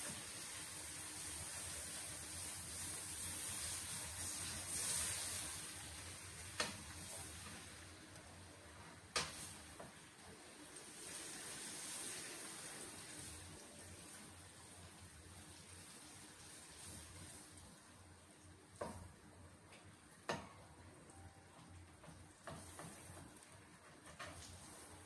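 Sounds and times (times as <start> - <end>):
butter sizzling in a wok: 0.0 - 8.0, 8.7 - 19.2, 22.0 - 23.5.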